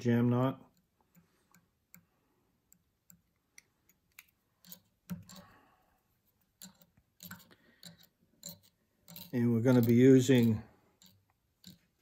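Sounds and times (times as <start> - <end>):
thread winding clicks: 6.4 - 12.0.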